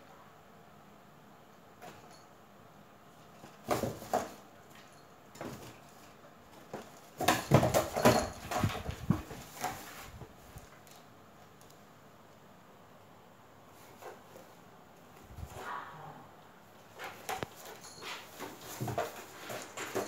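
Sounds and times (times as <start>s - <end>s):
rustles and thumps in box: 3.4s - 4.4s, 5.3s - 10.8s, 16.9s - 20.0s
cardboard box scraping and knocking: 18.4s - 20.0s.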